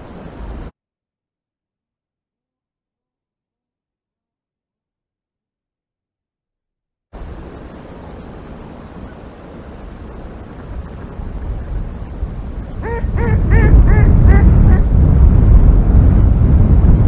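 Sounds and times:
wind buffeting microphone: 0.0 - 0.7, 7.2 - 17.0.

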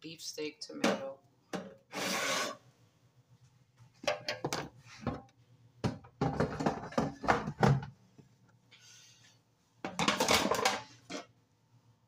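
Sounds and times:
kitchen knocks and taps: 4.0 - 7.9.

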